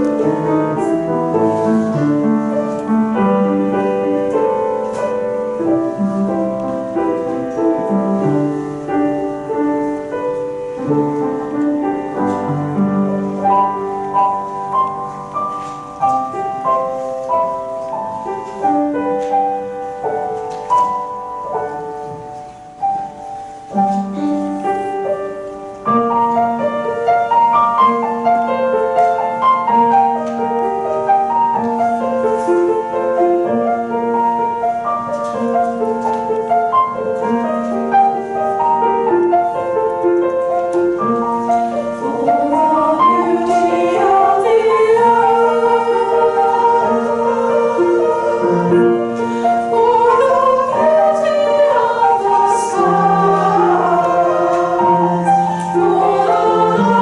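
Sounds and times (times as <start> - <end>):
piano accompaniment: 0.0 - 57.0
mixed choir singing: 42.0 - 57.0.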